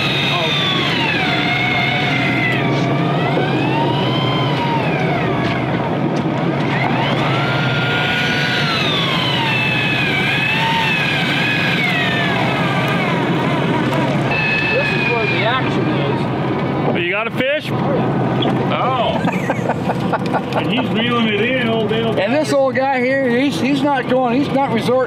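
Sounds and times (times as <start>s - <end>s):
electric fishing reel whining: 0.0s - 5.8s, 6.6s - 16.2s
wind: 0.0s - 25.0s.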